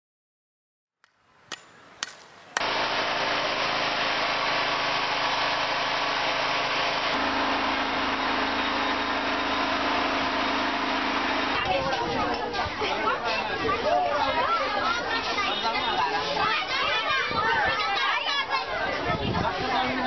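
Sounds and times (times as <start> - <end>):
power generator running: 2.6 - 17.0.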